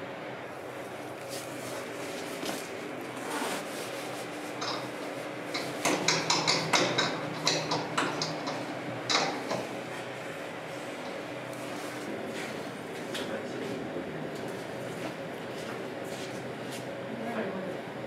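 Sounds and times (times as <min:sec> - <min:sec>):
low machine hum: 0:00.0 - 0:18.0
sharp knocks and clicks: 0:05.6 - 0:09.7.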